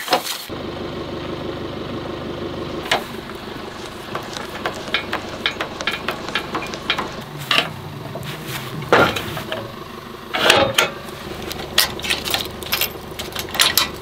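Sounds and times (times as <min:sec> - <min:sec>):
metal clanks: 0:02.8 - 0:14.0
trailer jack cranking clicks: 0:10.3 - 0:14.0.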